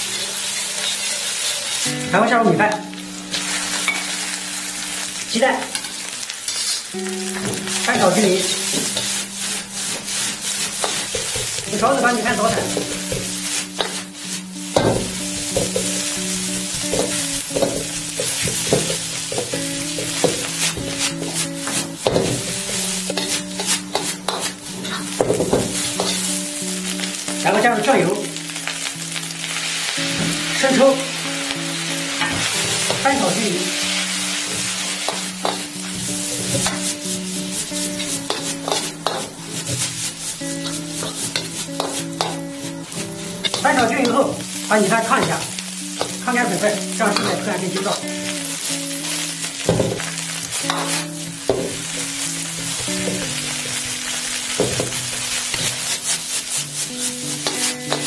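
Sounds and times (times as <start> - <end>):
steel ladle scraping wok: 0.0 - 2.0, 5.7 - 6.9, 8.4 - 11.7, 12.6 - 27.2, 33.8 - 43.7, 50.6 - 54.1, 55.4 - 58.0
rice sizzling in a wok: 0.0 - 58.0.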